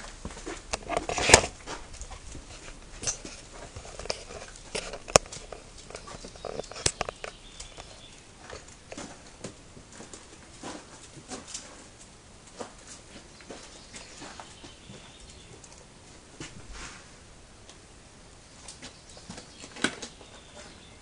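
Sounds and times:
handling knocks and clicks: 0.0s - 11.8s.

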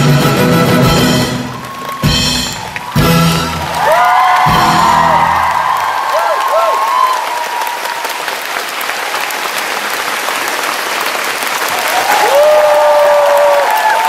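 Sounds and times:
audience clapping: 0.7s - 14.0s
high-pitched cheers: 1.2s - 9.2s, 11.6s - 14.0s.

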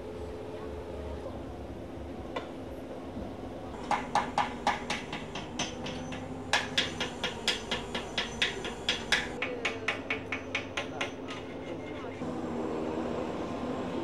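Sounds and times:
steady engine hum: 0.0s - 9.9s, 12.1s - 14.0s
hammer striking metal: 3.8s - 11.5s.

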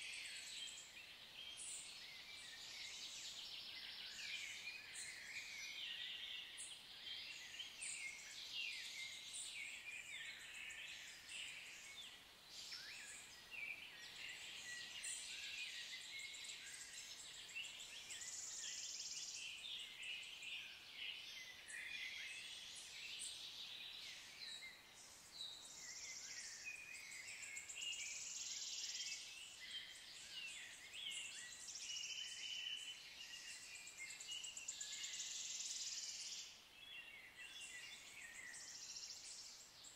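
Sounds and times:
birds chirping and singing: 0.0s - 39.9s.

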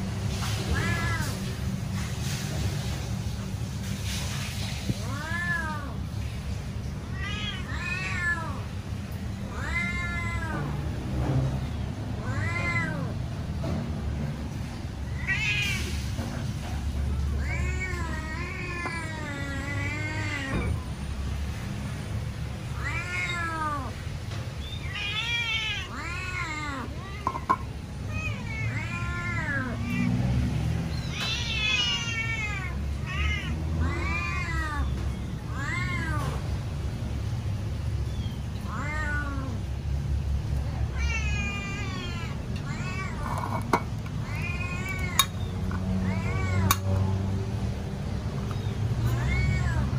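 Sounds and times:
cat meowing loudly: 0.5s - 1.5s, 4.9s - 6.0s, 7.1s - 8.7s, 9.5s - 10.9s, 12.2s - 13.2s, 15.1s - 16.1s, 17.2s - 20.9s, 22.6s - 24.0s, 24.8s - 30.2s, 31.0s - 36.5s, 38.6s - 39.6s, 40.8s - 47.0s, 48.9s - 49.9s.

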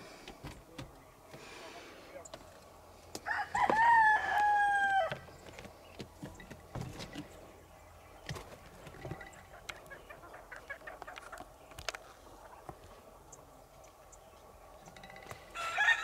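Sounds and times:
rooster crowing: 3.2s - 5.2s, 15.5s - 16.0s.

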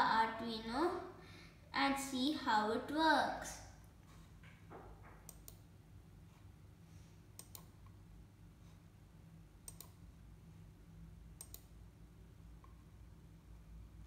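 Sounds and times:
low steady hum: 0.0s - 14.0s
computer mouse double clicks: 7.4s - 7.7s.

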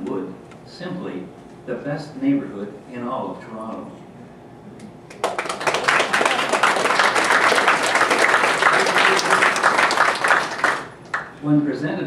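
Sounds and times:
audience applauding: 5.1s - 11.4s.

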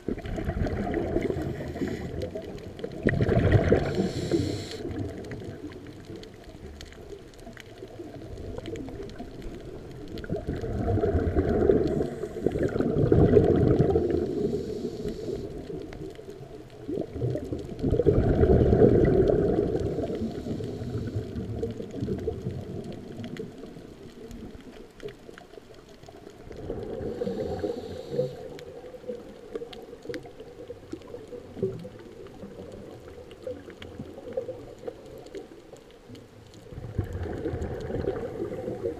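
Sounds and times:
bubbling exhalations underwater: 0.0s - 6.4s, 8.0s - 14.7s, 16.4s - 23.6s, 26.4s - 35.1s, 36.6s - 38.9s
regulator hiss: 3.8s - 5.0s, 14.2s - 15.6s, 27.1s - 28.6s.

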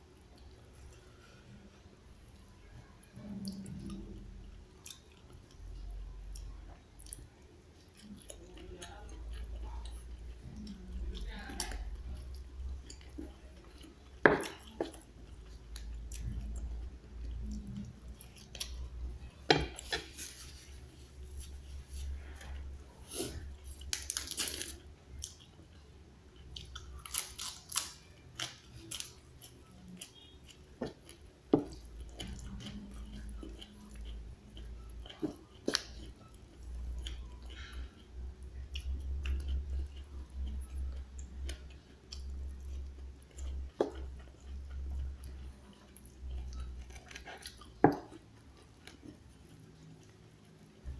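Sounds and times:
person chewing and crunching: 3.2s - 50.9s.

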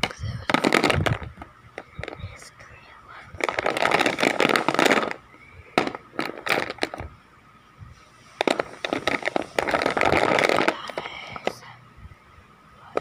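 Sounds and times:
crayons rustling in box: 3.4s - 5.2s, 8.3s - 11.6s.

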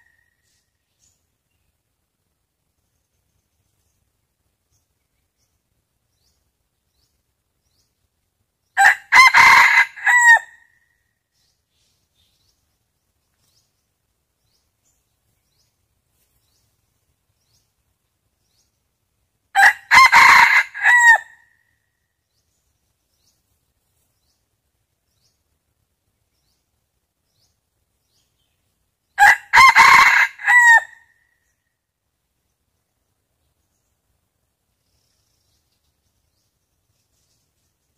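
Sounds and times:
rooster crowing: 8.8s - 10.6s, 19.6s - 21.4s, 29.2s - 31.0s.

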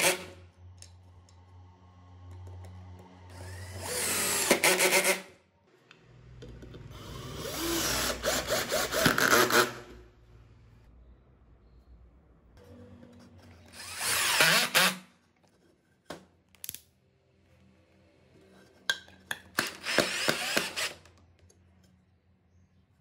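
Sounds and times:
drill driving screw into wood: 3.3s - 5.3s, 6.9s - 10.0s, 13.7s - 15.0s, 19.5s - 21.1s.

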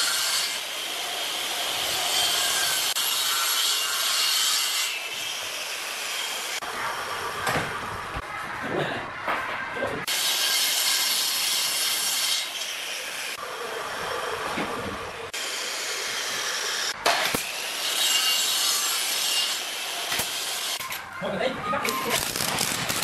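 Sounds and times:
miter saw cutting wood: 15.2s - 20.8s
sharp crack: 22.1s - 23.0s.

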